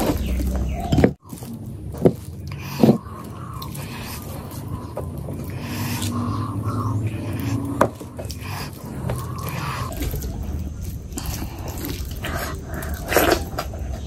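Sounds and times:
hand squishing wet rice: 0.0 - 14.0
wet eating sound: 0.0 - 14.0.

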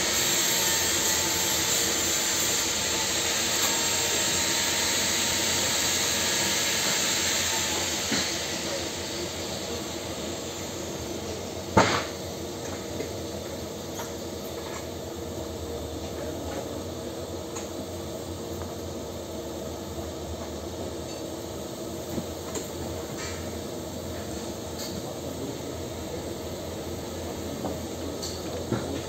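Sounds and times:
welding arc hissing: 0.0 - 12.4.

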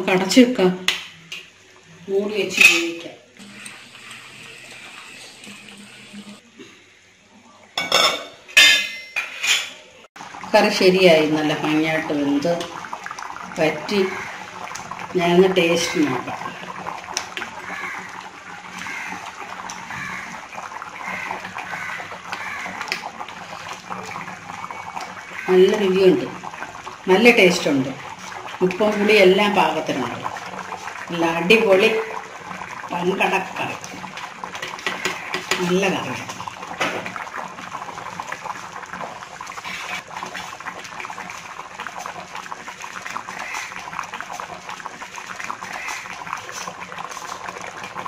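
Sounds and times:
curry bubbling and popping: 10.2 - 48.0.

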